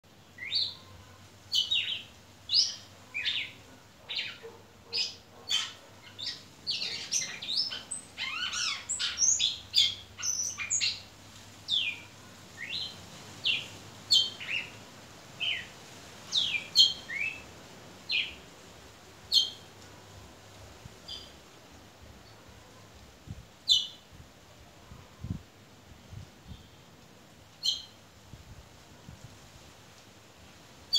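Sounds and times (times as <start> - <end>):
bird singing whistled notes: 27.6 - 28.0.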